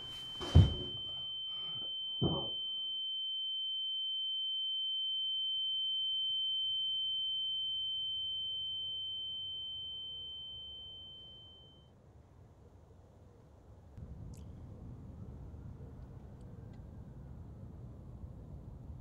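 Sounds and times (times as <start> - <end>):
high-pitched ringing tone: 0.1 - 11.9
faint low rumble: 12.4 - 19.0.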